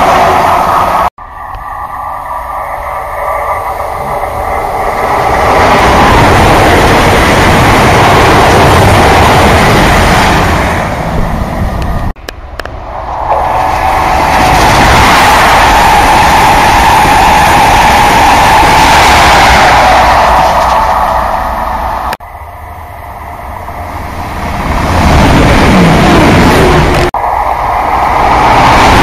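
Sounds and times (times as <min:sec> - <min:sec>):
diesel train approaching: 0:00.0 - 0:29.0
diesel train passing: 0:00.0 - 0:29.0.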